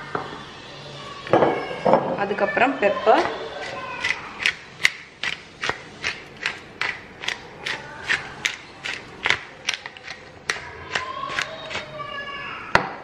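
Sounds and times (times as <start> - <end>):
pepper mill grinding clicks: 4.0 - 11.9.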